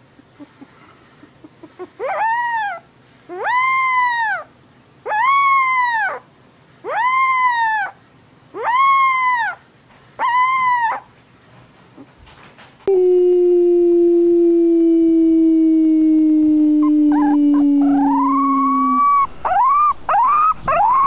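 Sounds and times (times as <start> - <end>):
animal calls: 0.4 - 9.6, 10.2 - 11.1, 16.8 - 21.0
high howling cries: 1.2 - 11.1, 12.9 - 21.0
long low falling tone: 12.9 - 19.4.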